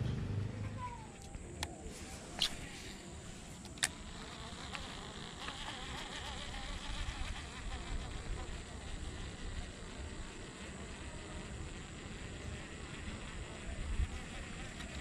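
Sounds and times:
fishing reel spool whirring: 1.4 - 15.0
fishing reel clicks: 3.6 - 8.1.

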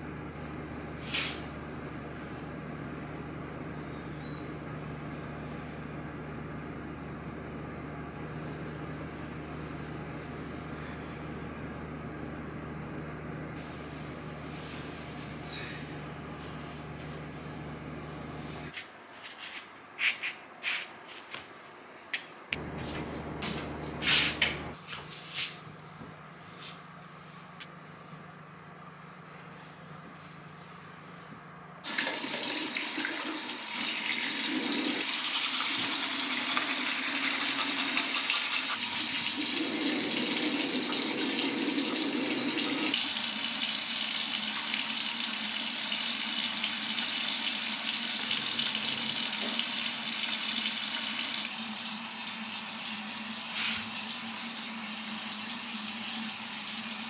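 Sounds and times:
tap water running into sink: 31.9 - 51.5.

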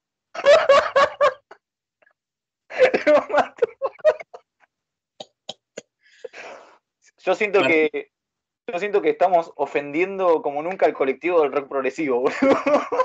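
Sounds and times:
men laughing: 0.4 - 1.6, 2.7 - 4.5, 12.2 - 13.0.

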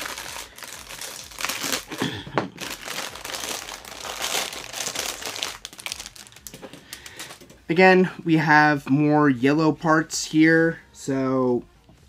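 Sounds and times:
plastic bag crinkling: 0.0 - 7.5.

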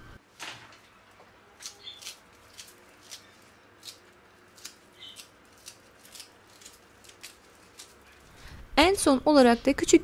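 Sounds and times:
scissors snipping parsley: 1.6 - 8.3.

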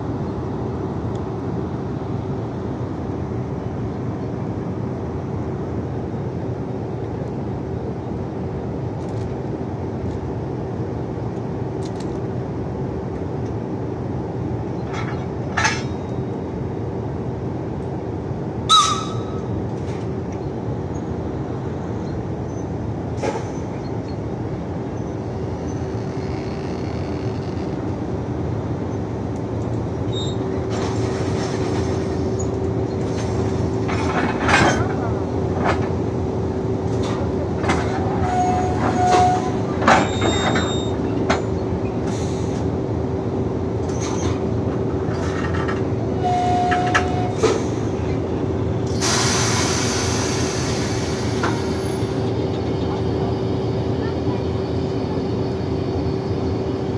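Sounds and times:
electric locomotive humming: 0.0 - 56.9
brief squeals: 38.2 - 41.1
air hissing: 48.9 - 52.0.

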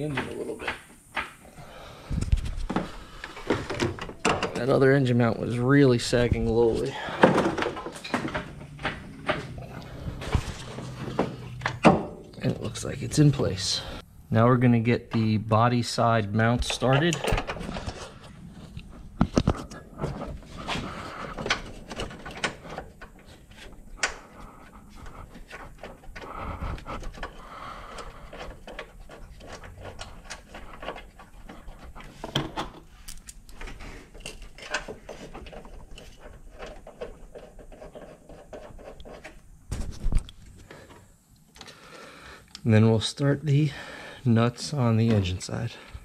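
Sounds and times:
person breathing: 1.4 - 3.8, 6.8 - 8.5, 9.5 - 11.6, 13.6 - 14.3, 20.4 - 21.7, 26.2 - 28.6, 40.6 - 42.6, 43.7 - 44.3, 45.7 - 46.0.

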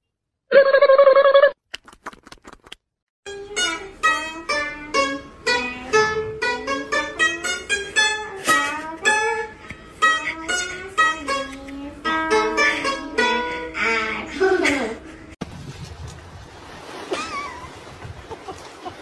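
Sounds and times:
plucked lute melody: 3.3 - 14.9.

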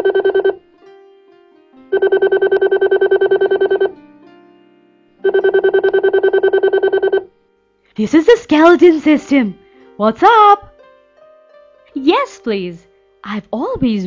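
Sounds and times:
cartoon telephone trilling ring: 0.0 - 0.6, 1.9 - 3.9, 5.2 - 7.3
soft background music: 0.0 - 14.0.

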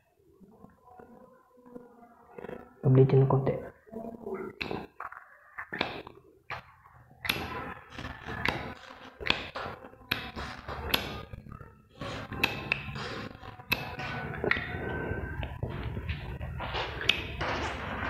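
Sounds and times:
metal rod tapping and clicking: 7.2 - 7.5, 8.4 - 11.2, 12.4 - 13.0, 13.7 - 14.7, 17.0 - 17.3.

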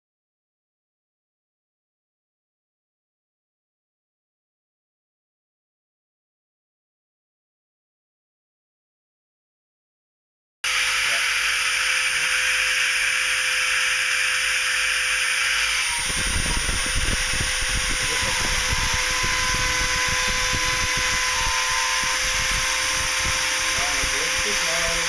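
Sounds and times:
rotary tool whining: 10.6 - 25.0
bit grinding into board: 15.3 - 25.0.

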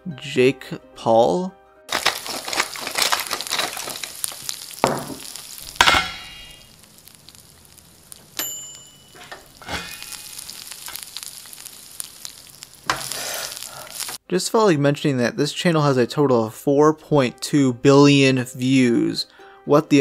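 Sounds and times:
sharp cracks: 1.9 - 8.4, 9.4 - 14.2
food sizzling on coals: 1.9 - 14.2.

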